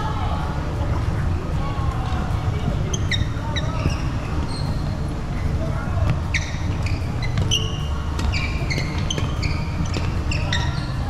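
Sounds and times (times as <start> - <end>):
steady low rumble: 0.0 - 11.0
court shoes squeaking: 2.0 - 11.0
rackets striking shuttlecock: 6.0 - 10.8.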